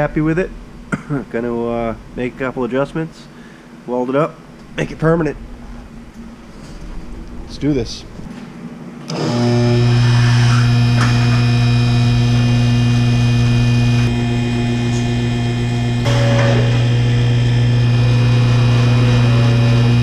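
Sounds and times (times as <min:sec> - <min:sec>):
hydraulic pump motor humming: 0:09.1 - 0:20.0.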